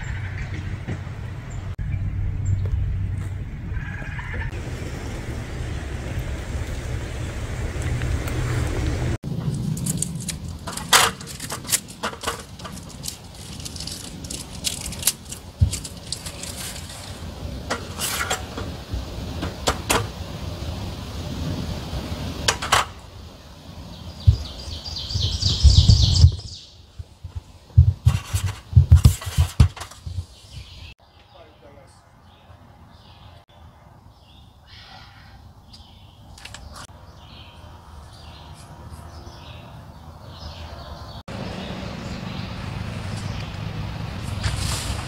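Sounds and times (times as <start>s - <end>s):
strong wind rumbling: 0.0s - 31.0s
rapid ticks and thumps: 9.3s - 20.2s, 24.2s - 30.7s.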